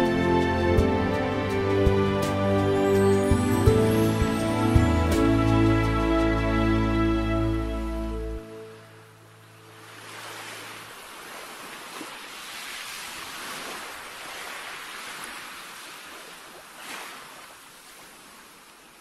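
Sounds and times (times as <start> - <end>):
rushing surf-like noise: 9.6 - 15.4.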